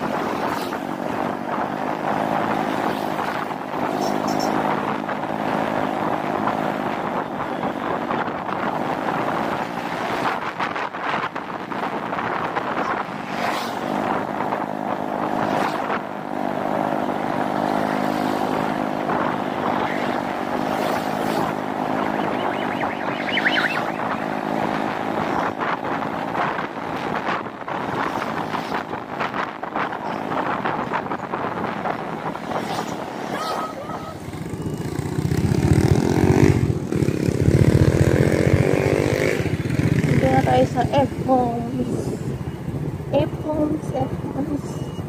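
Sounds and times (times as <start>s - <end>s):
wind rushing over microphone: 0.0s - 45.0s
high chirping: 3.9s - 4.6s, 21.7s - 24.4s
motorcycle engine running: 30.0s - 41.6s.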